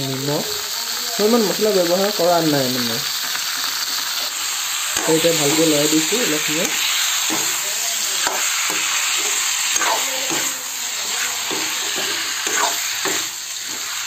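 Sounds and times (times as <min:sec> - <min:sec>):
pork and potatoes sizzling in oil: 0:00.0 - 0:14.0
metal spatula scraping pan: 0:04.2 - 0:14.0.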